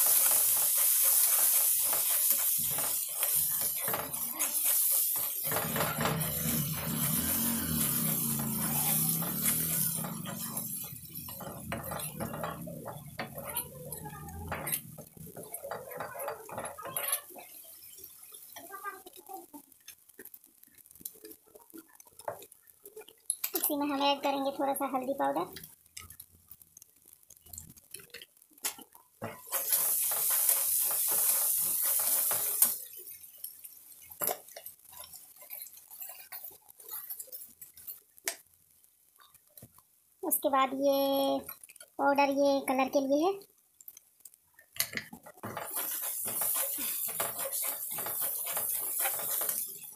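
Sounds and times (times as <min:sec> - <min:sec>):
metal spatula scraping pan: 0:00.0 - 0:17.5, 0:29.2 - 0:32.9, 0:45.3 - 0:49.9
paste frying: 0:00.0 - 0:49.9.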